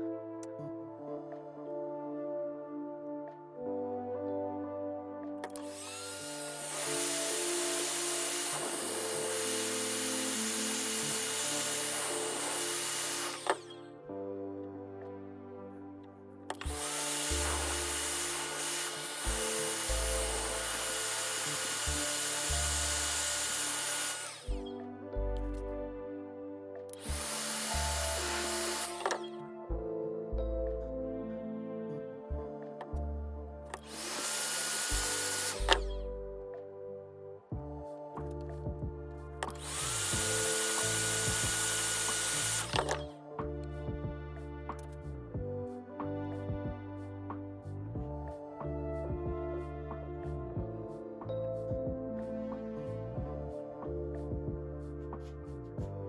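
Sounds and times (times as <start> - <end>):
background music: 0.0 - 56.0
heat gun hissing: 5.6 - 13.7, 16.7 - 24.6, 27.0 - 29.2, 33.8 - 35.8, 39.6 - 42.9
background music with bass beat: 37.5 - 39.4, 43.4 - 56.0.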